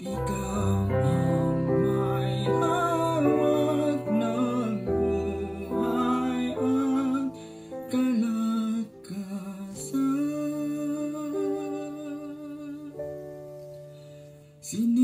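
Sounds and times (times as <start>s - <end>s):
backing track music: 0.0s - 9.1s
man singing a ballad: 0.0s - 13.2s, 14.6s - 15.0s.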